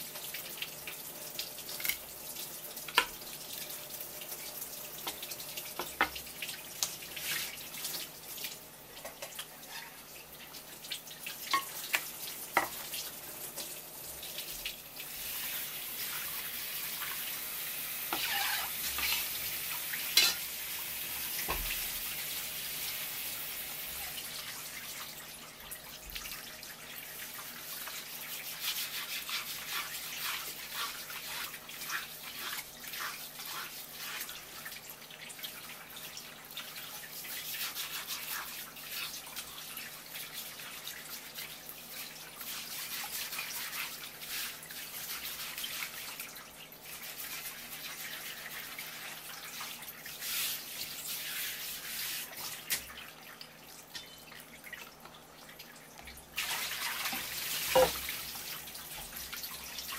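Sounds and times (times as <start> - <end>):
tap water splashing: 2.8 - 3.2, 5.0 - 9.6, 10.8 - 13.7, 21.4 - 21.9, 52.4 - 59.5.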